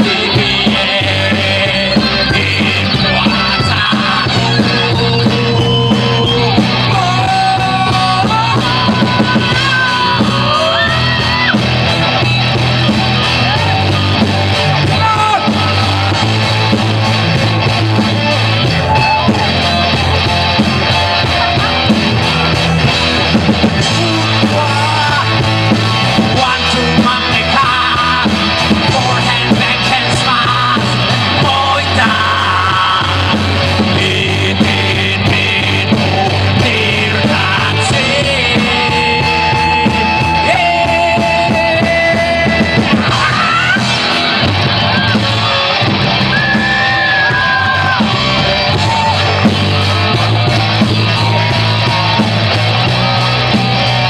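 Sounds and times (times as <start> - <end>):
man singing: 0.0 - 12.2, 13.2 - 16.7, 18.2 - 45.2
live rock band playing: 0.0 - 54.0.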